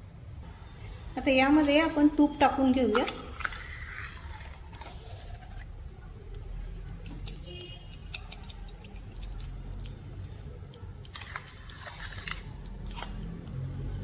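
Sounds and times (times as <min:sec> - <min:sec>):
spoon scraping metal jar: 0:06.9 - 0:13.4.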